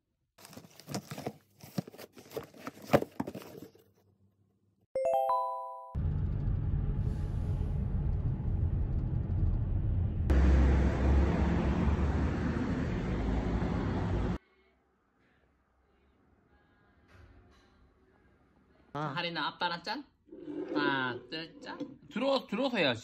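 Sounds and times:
car driving rumble: 6.0 - 14.4.

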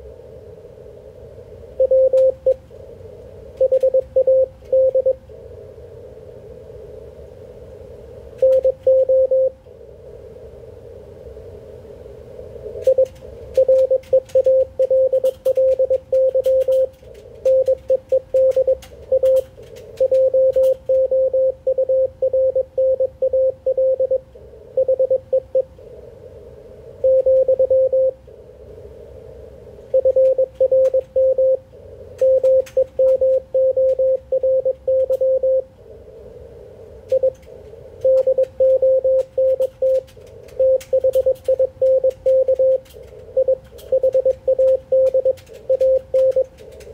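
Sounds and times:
radio band noise hiss: 0.0 - 46.9
morse code tone: 1.8 - 2.6, 3.6 - 5.2, 8.4 - 9.6, 12.8 - 24.2, 24.8 - 25.7, 27.0 - 28.2, 29.9 - 31.6, 32.2 - 35.7, 37.1 - 37.4, 38.0 - 40.0, 40.6 - 42.8, 43.4 - 46.5
faint clicks: 12.8 - 21.1, 37.1 - 46.9.

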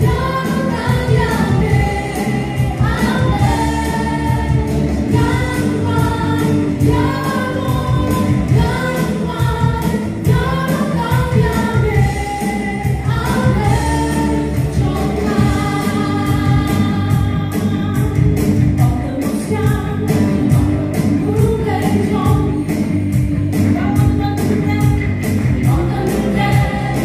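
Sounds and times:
group of singers singing: 0.0 - 27.0
live band with drums and bass: 0.0 - 27.0.

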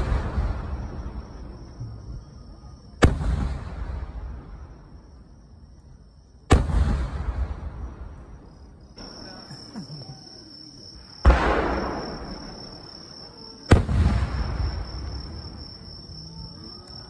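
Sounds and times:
firework booms with echo: 0.0 - 2.0, 3.0 - 5.0, 6.5 - 9.1, 11.0 - 15.9
insects chirring: 0.0 - 17.0.

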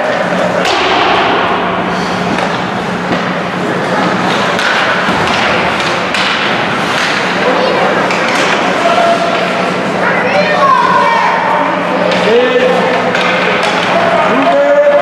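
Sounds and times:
steady low hum: 0.0 - 14.4
spectators talking: 0.0 - 15.0
hockey sticks puck and boards knocking: 0.5 - 3.4, 4.0 - 9.5, 12.9 - 15.0.

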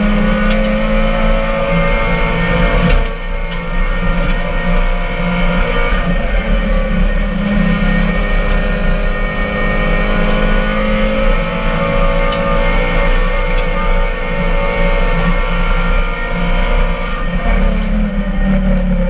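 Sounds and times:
car engine running hard: 0.0 - 19.0
road and wind noise: 0.0 - 19.0.

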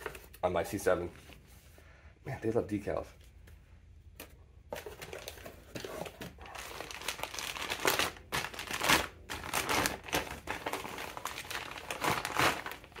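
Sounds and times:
plastic bag crinkling: 4.8 - 13.0.

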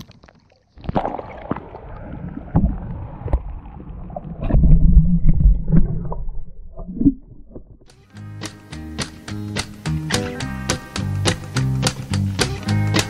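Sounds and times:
underwater water sloshing and gurgling: 0.0 - 7.9.

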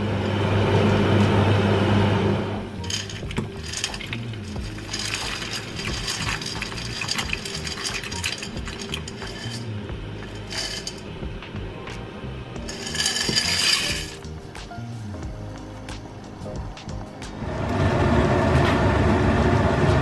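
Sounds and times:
dry pasta clattering into pot: 2.8 - 11.2, 12.6 - 14.4.

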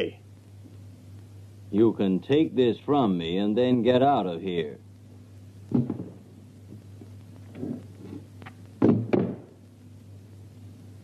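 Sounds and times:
low steady hum: 0.0 - 11.0
wooden thumps: 5.7 - 6.2, 8.8 - 9.5.

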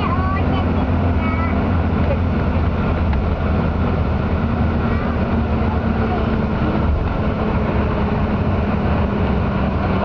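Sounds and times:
vehicle engine and road noise: 0.0 - 10.0.

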